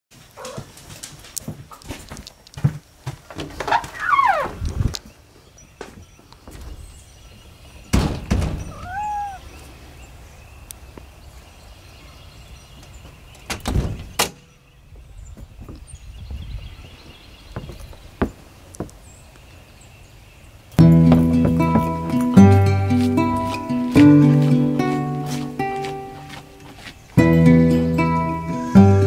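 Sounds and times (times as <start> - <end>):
door thudding open and shut: 7.9 - 9.0, 13.5 - 14.4.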